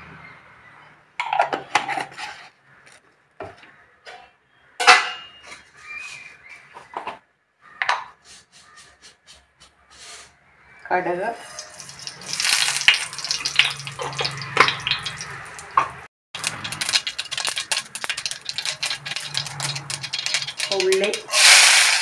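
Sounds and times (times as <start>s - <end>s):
kitchenware and glass jar clattering: 15.8s - 22.0s.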